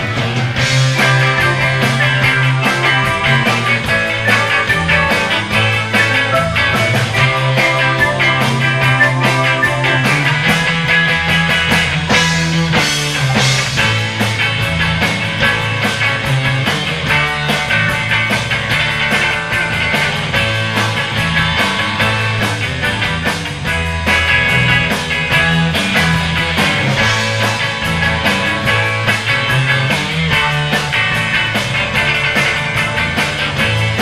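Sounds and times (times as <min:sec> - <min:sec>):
lead electric guitar: 0:00.0 - 0:34.0
live instrumental surf rock band: 0:00.0 - 0:34.0
steady drum beat: 0:01.0 - 0:10.7
moving bass line: 0:01.0 - 0:11.3.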